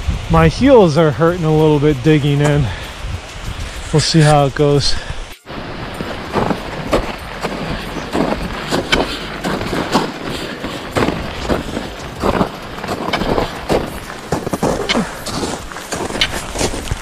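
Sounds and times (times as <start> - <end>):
boots crunching into snow: 3.4 - 17.0
ice axe jabbing snow: 5.4 - 17.0.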